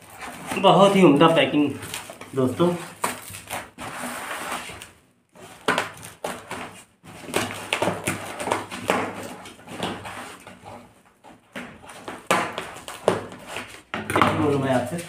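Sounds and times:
plastic wrapping crinkling: 0.0 - 10.5
scissors cutting plastic wrapping: 0.0 - 10.8.

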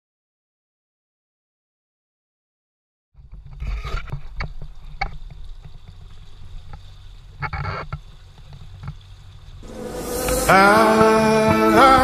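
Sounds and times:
low rumble of water: 3.2 - 11.8
splash-like rush: 9.6 - 12.0.

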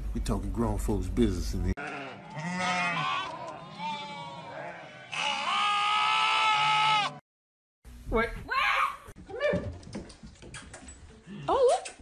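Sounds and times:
lamb bleating: 1.8 - 7.2.

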